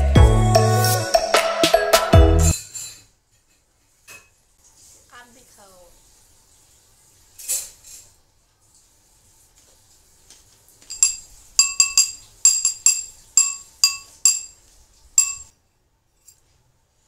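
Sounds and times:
glass clinking: 10.8s - 14.6s, 15.2s - 15.6s.

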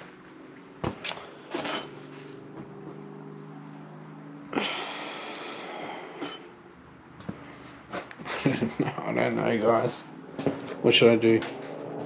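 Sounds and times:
steady low hum: 0.0s - 12.0s
man sighing heavily: 4.5s - 6.2s.

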